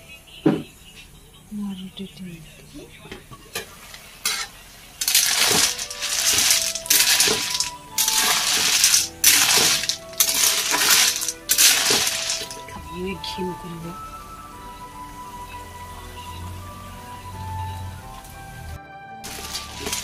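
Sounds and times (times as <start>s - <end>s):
snail shells clattering in a wok: 4.3s - 12.8s, 19.2s - 20.0s.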